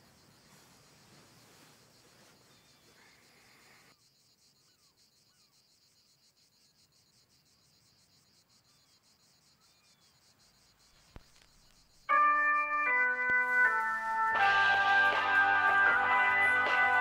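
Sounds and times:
crickets chirping: 0:00.0 - 0:16.4
music with loud held notes: 0:12.1 - 0:17.0.

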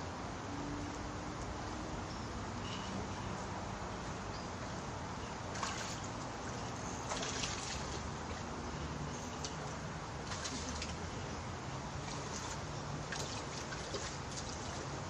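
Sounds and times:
outdoor background noise: 0:00.0 - 0:15.0
pond water splashes: 0:05.5 - 0:11.2, 0:11.8 - 0:15.0.

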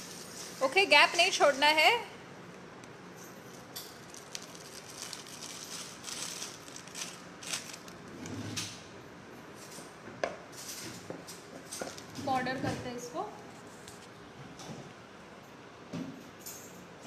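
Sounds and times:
plastic piping bag rustling: 0:03.9 - 0:08.2.

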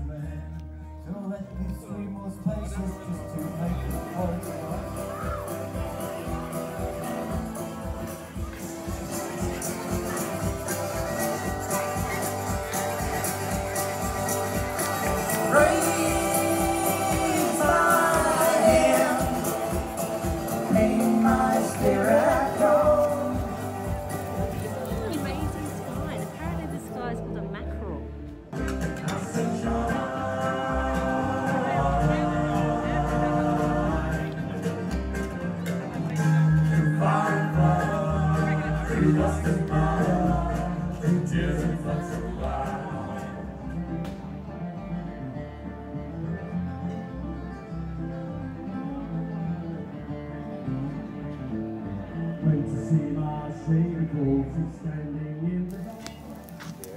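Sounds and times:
sustained bass line: 0:00.0 - 0:56.9
steady drum beat: 0:04.6 - 0:26.7
person singing: 0:14.6 - 0:25.2, 0:28.8 - 0:34.7, 0:36.8 - 0:43.7.

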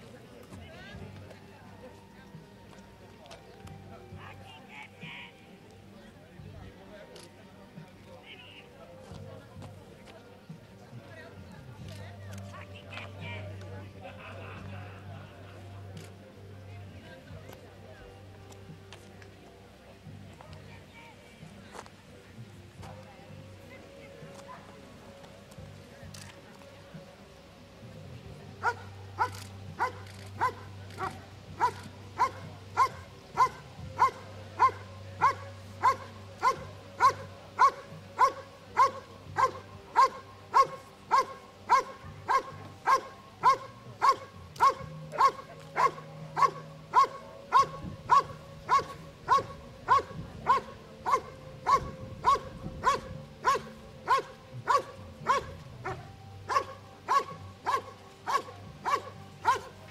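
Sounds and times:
dog barking rhythmically: 0:28.6 - 0:59.8.

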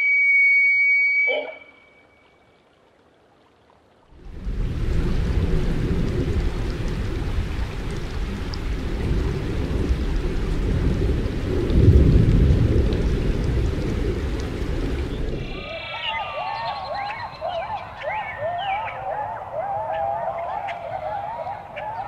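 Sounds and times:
steady rain falling: 0:02.5 - 0:22.0
rolling thunder rumble: 0:04.2 - 0:18.2.

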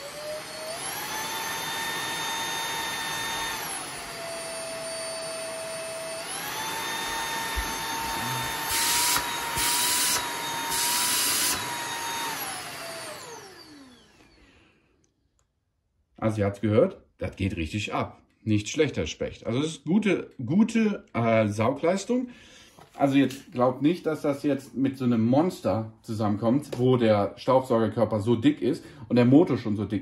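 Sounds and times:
vacuum motor whine: 0:00.0 - 0:14.5.

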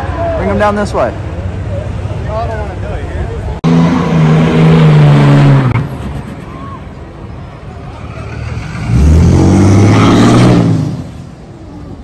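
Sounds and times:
diesel truck engine revving: 0:03.6 - 0:06.3, 0:07.7 - 0:11.4.

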